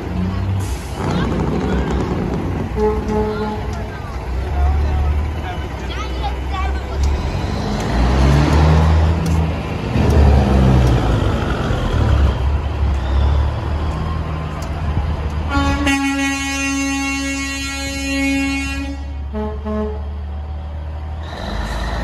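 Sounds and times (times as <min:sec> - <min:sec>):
diesel truck engines rumbling: 0:00.0 - 0:22.0
truck air horn blast: 0:02.6 - 0:03.8, 0:15.5 - 0:20.2.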